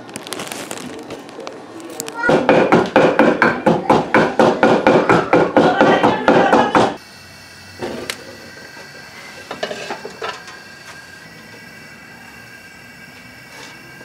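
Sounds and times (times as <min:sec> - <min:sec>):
pestle pounding in mortar: 0:02.2 - 0:07.0
gas burner hiss: 0:06.4 - 0:14.0.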